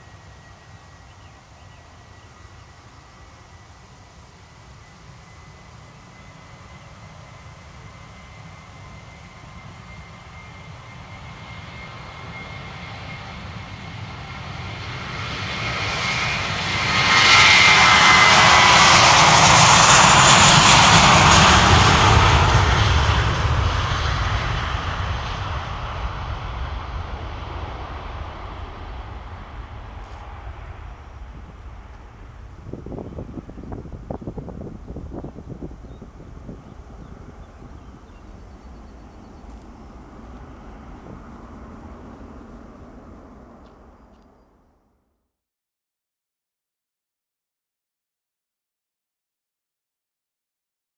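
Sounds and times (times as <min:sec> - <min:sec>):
high engine whine: 0:00.0 - 0:44.8
jet airliner engine roar: 0:00.0 - 0:45.0.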